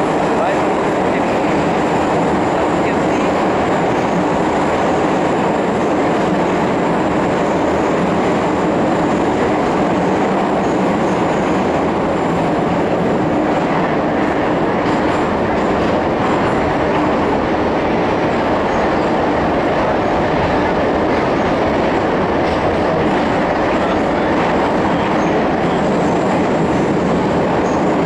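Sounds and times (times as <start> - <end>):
train wheels rumbling on rail: 0.0 - 28.0.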